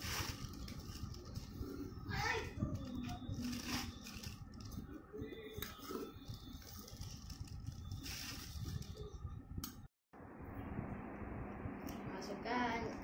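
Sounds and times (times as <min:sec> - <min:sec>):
plastic bag crinkling: 0:00.0 - 0:01.7, 0:02.8 - 0:04.8, 0:06.3 - 0:09.0.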